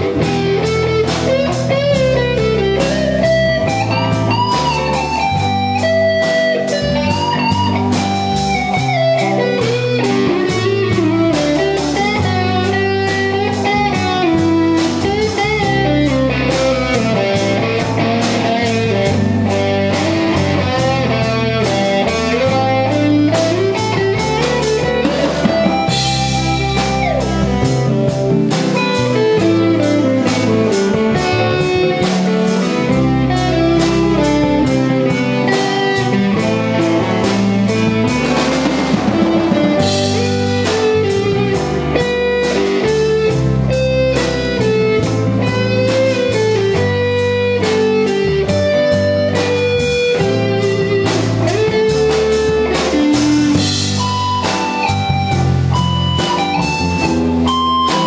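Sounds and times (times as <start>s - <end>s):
drum kit: 0.0s - 58.0s
guitar lines: 0.0s - 58.0s
walking bass: 0.0s - 58.0s.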